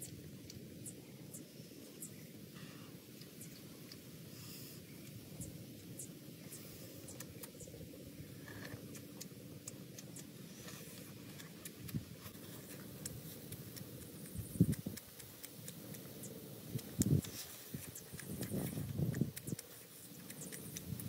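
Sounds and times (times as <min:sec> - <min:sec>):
lip-smacking clicks: 0:07.0 - 0:07.8, 0:08.6 - 0:10.4, 0:11.0 - 0:21.0
crunching and chewing: 0:08.4 - 0:21.0.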